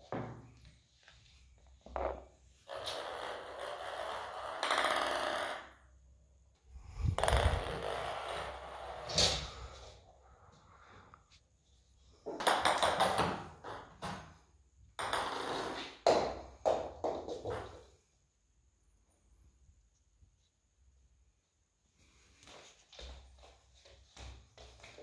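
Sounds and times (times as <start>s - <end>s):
ball knocking on floor: 7.1s - 9.4s, 12.3s - 14.3s, 15.0s - 17.9s.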